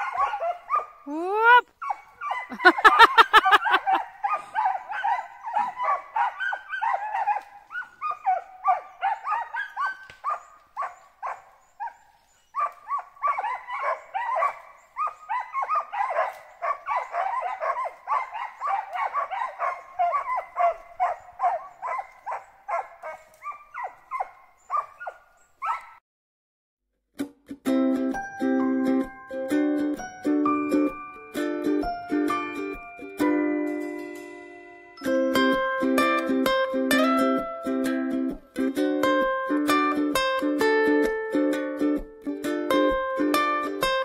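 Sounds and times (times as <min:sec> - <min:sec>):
dogs barking rapidly: 0:00.0 - 0:01.0, 0:01.8 - 0:26.0.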